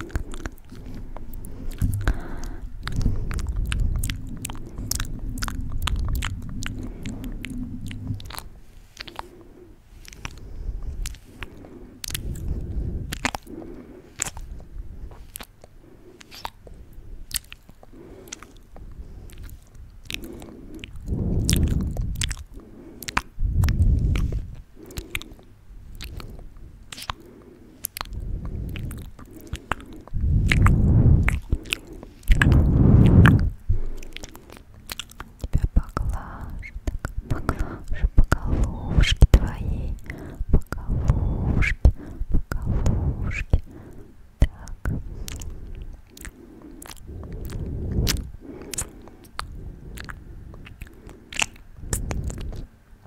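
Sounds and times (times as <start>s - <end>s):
lip and tongue clicks: 0.0s - 53.0s
low rushing sounds: 0.7s - 11.1s, 30.0s - 34.1s, 37.2s - 46.0s.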